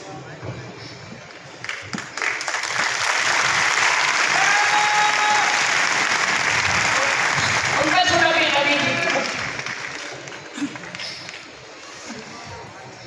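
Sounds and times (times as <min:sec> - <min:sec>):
audience applauding: 0:01.6 - 0:11.6.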